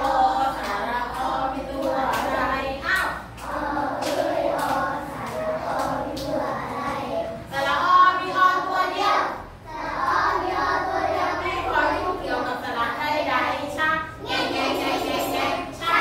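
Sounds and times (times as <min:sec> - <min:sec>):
children singing in unison: 0:03.4 - 0:07.4, 0:08.2 - 0:12.0.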